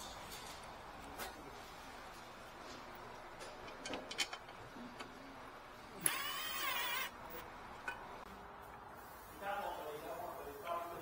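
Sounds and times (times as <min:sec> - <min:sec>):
cordless driver motor whining: 0:06.0 - 0:07.2.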